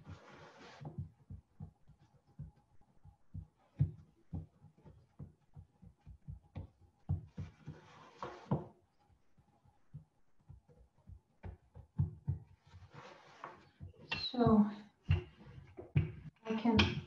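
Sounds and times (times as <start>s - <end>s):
brushing rustle: 0.0s - 1.0s, 7.4s - 8.6s, 12.6s - 13.8s
hands thumping dough: 0.8s - 8.8s, 9.9s - 17.0s.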